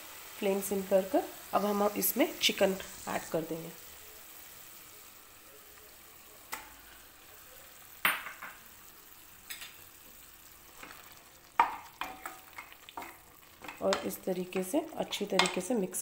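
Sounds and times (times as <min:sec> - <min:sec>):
food sizzling in a pan: 0:00.0 - 0:16.0
wooden spoon knocking and scraping pan: 0:11.6 - 0:15.7.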